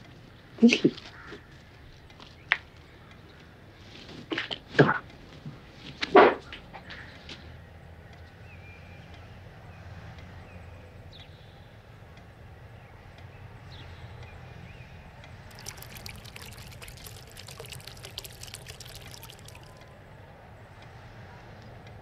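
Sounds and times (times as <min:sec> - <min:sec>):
water pouring into glass jar: 0:15.5 - 0:19.9
water splashing and bubbling: 0:15.5 - 0:19.9.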